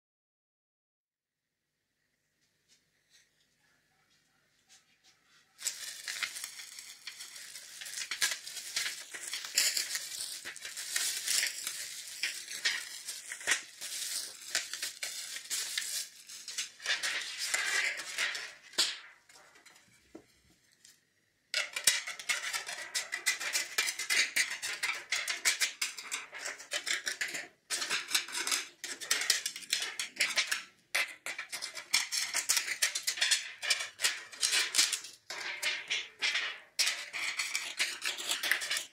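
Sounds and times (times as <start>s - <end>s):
scissors snipping foil: 5.6s - 18.5s
foil trays crinkling and clattering: 5.6s - 19.7s, 21.6s - 38.9s.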